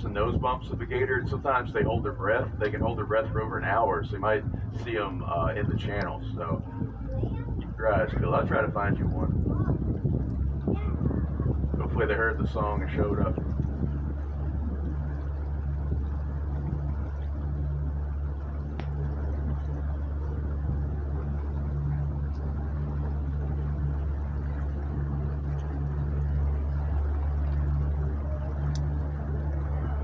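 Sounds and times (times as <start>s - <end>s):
boat motor humming: 0.0s - 30.0s
water noise: 0.0s - 30.0s.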